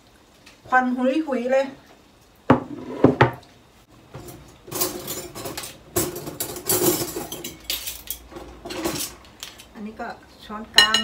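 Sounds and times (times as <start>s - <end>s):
bowls knocking on counter: 2.5s - 3.4s
spoons rattling: 4.3s - 9.7s.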